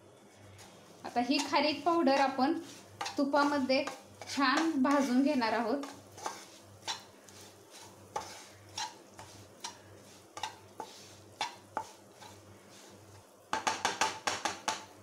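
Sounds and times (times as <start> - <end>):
wooden spatula scraping a pan: 0.4 - 14.2
spatula tapping on a pan: 8.2 - 9.8, 10.4 - 12.3, 13.5 - 15.0.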